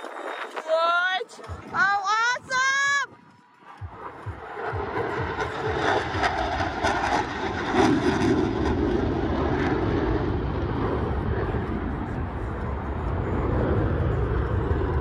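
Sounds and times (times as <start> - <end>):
jets flying past low: 3.0 - 15.0.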